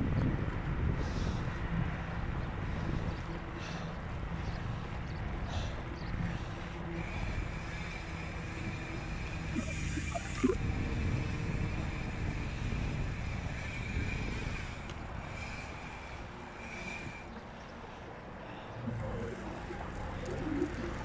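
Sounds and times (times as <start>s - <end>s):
wind rushing over microphone: 0.0s - 17.4s
bicycle tyres rolling on asphalt: 0.0s - 21.0s.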